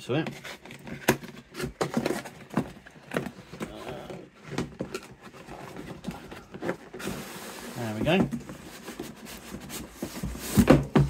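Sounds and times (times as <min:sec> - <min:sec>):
cardboard scraping and rustling: 0:00.1 - 0:11.0
knocks and taps on cardboard: 0:10.0 - 0:11.0.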